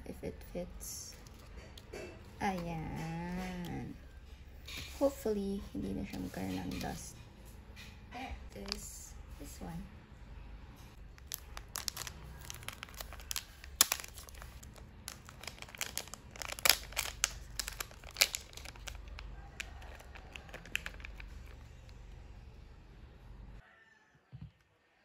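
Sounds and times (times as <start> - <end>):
plastic packet crinkling: 8.6 - 8.9, 11.0 - 22.1.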